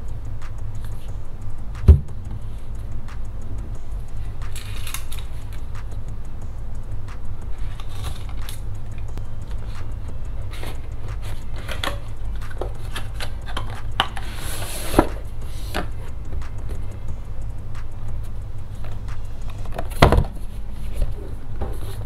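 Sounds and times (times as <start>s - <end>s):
low hum: 0.0s - 22.0s
sharp knock: 1.8s - 2.3s.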